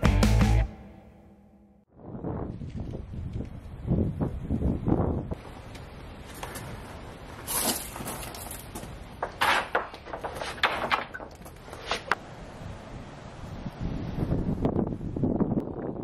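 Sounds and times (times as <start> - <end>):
wooden boards knocking and scraping: 8.8 - 12.2.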